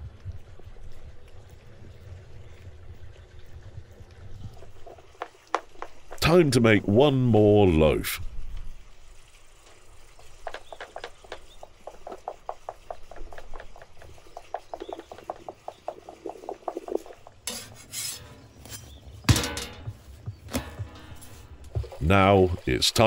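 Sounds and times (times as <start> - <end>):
spatula scraping steel griddle: 17.4 - 19.9.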